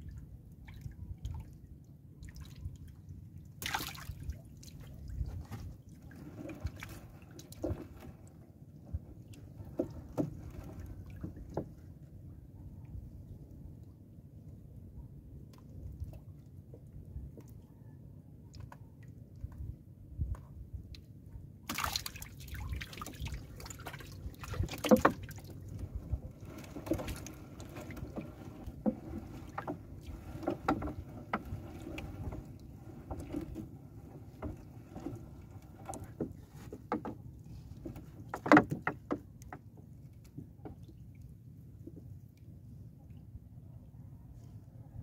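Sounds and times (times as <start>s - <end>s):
knocks against wooden hull: 9.6s - 11.8s, 23.6s - 32.4s, 33.0s - 39.7s
water trickling off net: 21.7s - 33.7s.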